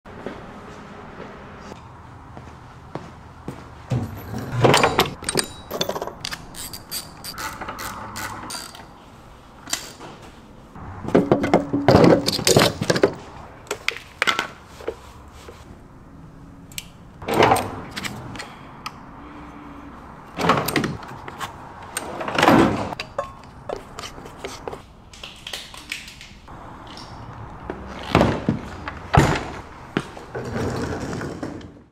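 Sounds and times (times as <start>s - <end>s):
metal tools clinking: 3.9s - 8.9s, 23.0s - 23.6s.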